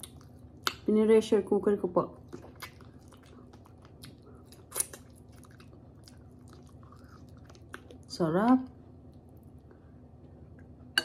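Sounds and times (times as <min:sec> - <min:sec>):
chewing meat: 0:00.0 - 0:00.9, 0:02.2 - 0:08.1.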